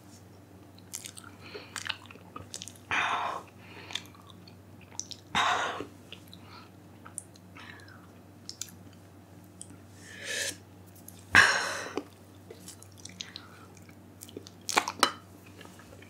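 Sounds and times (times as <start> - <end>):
mouth and chewing sounds: 0.8 - 5.3, 12.0 - 16.0
loud puff of breath: 10.0 - 10.6
sharp breath: 10.0 - 10.6.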